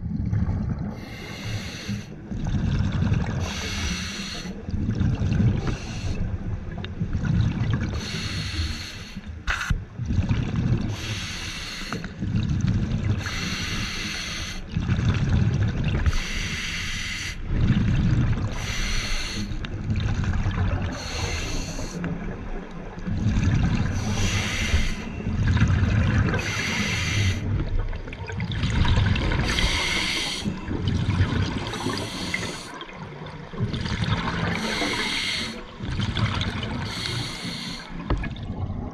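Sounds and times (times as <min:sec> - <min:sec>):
rumble of exhaled bubbles: 0:00.0 - 0:08.4, 0:09.3 - 0:11.2, 0:12.0 - 0:13.7, 0:14.6 - 0:16.6, 0:17.4 - 0:38.9
regulator hiss on inhalation: 0:18.6 - 0:19.6, 0:24.0 - 0:25.1, 0:26.4 - 0:27.5, 0:29.5 - 0:30.5, 0:31.8 - 0:32.7, 0:34.6 - 0:35.6, 0:36.9 - 0:37.9.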